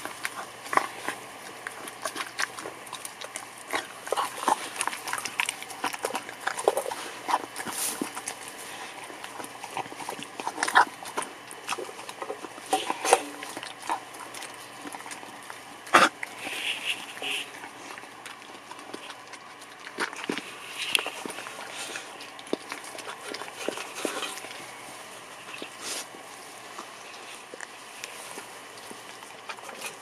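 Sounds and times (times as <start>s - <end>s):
teeth clicking on metal bowl: 0.0s - 24.6s
dog chewing and smacking: 0.0s - 30.0s.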